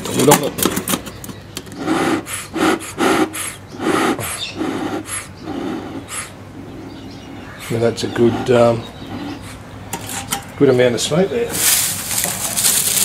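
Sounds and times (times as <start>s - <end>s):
bellows puffs of air: 1.8s - 6.7s, 7.3s - 9.7s.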